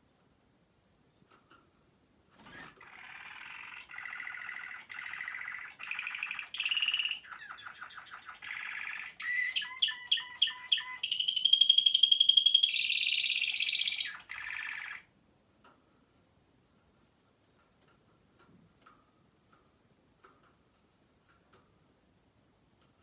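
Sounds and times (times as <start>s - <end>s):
canary singing trills: 2.4s - 15.1s.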